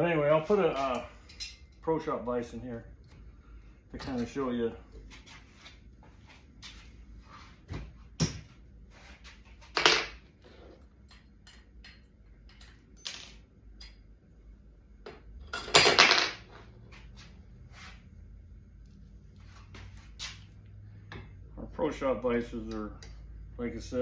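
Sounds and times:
metal parts clicking and knocking: 11.0 - 14.0.

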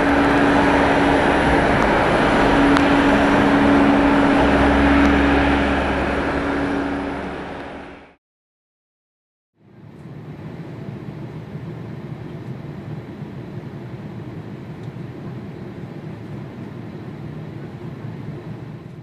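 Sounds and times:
airliner cabin roar: 0.0 - 8.2.

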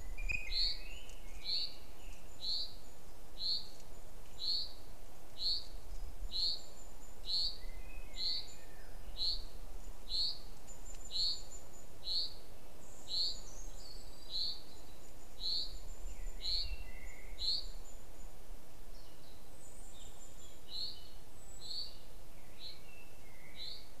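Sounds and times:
faint high bird chirps: 0.0 - 4.8
outdoor background hiss: 0.0 - 24.0.

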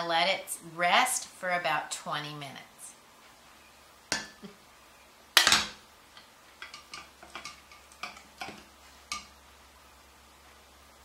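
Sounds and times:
metal kitchenware clattering: 6.6 - 9.3.

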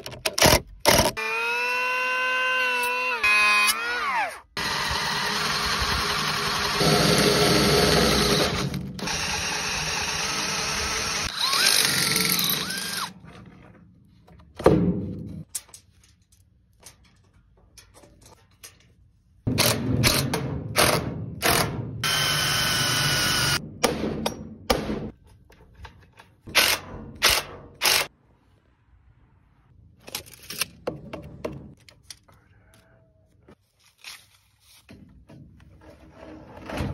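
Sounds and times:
cordless drill drilling wood: 1.2 - 13.1, 22.0 - 23.6
power tool running on wood: 22.0 - 23.6.

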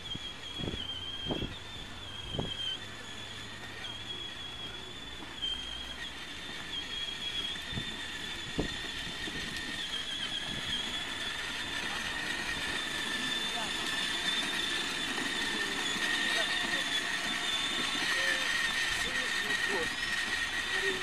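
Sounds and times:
toy car motors whining: 0.0 - 21.0.

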